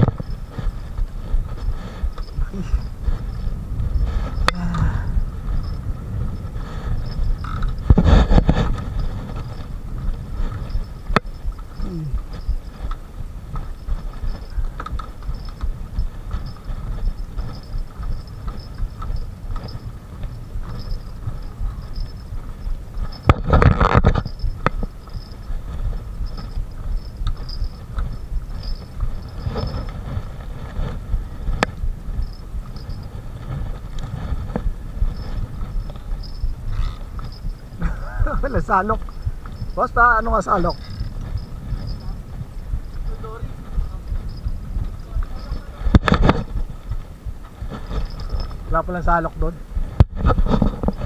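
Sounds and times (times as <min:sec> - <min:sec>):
wind rumble on microphone: 0:00.0 - 0:51.0.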